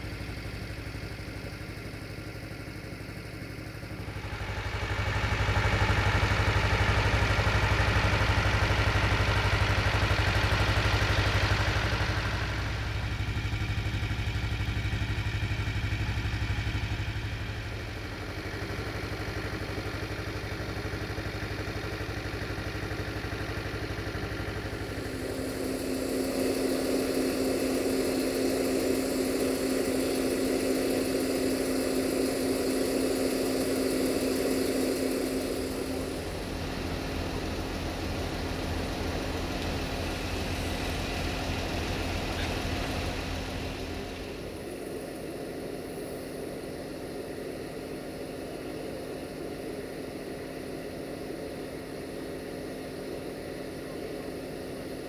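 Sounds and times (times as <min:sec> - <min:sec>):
locomotive engine idling: 0:00.0 - 0:55.0
hiss: 0:23.8 - 0:55.0.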